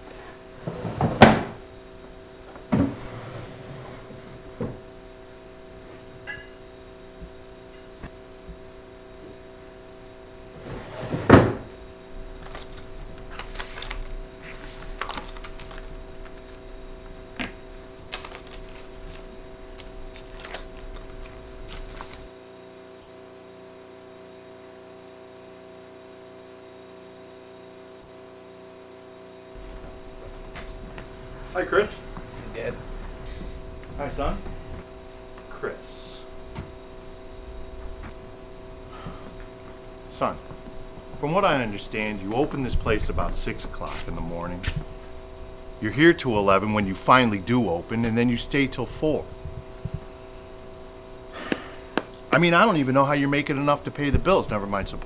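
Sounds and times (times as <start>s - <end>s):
room hum: 0.0s - 55.0s
knocks and thumps: 0.6s - 1.6s, 4.4s - 4.9s, 11.0s - 11.8s, 29.6s - 35.6s, 36.2s - 41.3s.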